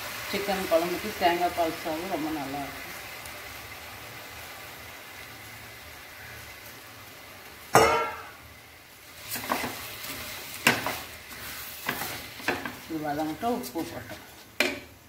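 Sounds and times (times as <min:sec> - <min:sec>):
rice sizzling: 0:00.0 - 0:15.0
steel bowl clanging: 0:07.8 - 0:08.4
wooden spatula scraping: 0:09.3 - 0:14.9.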